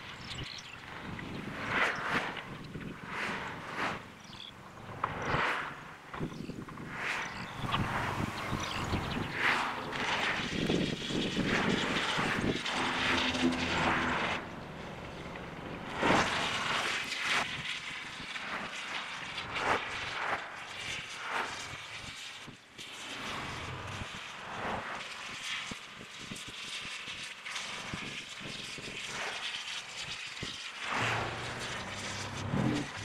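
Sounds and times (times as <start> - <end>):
machinery noise surging: 0.8 - 17.2, 30.8 - 33.0.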